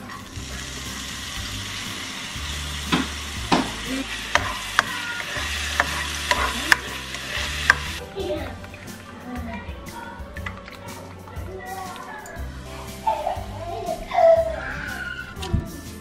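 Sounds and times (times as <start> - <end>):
garlic sizzling in hot oil: 0.0 - 8.0
spatula knocking against pan: 2.9 - 6.9.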